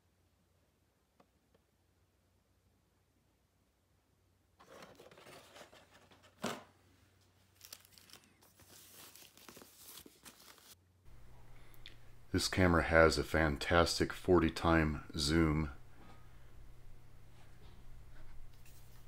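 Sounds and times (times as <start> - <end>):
plastic packaging crinkling: 7.3 - 10.8
plastic ripping: 7.5 - 10.8.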